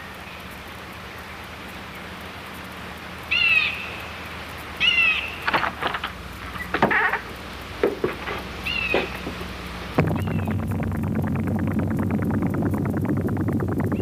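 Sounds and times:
background hiss: 0.0s - 14.0s
crows cawing: 3.3s - 4.0s, 4.8s - 5.7s, 8.6s - 9.3s.

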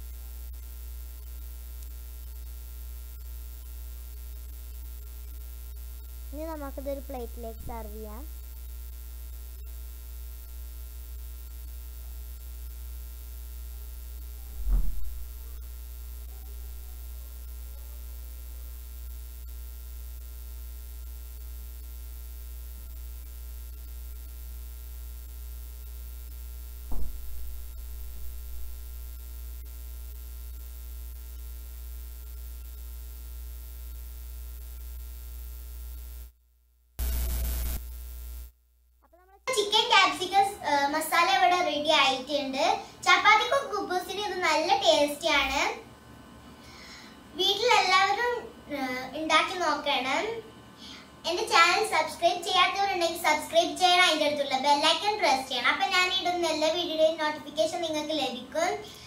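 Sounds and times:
low mains hum: 0.0s - 59.0s
brief knocks: 14.6s - 15.6s, 26.9s - 28.9s.

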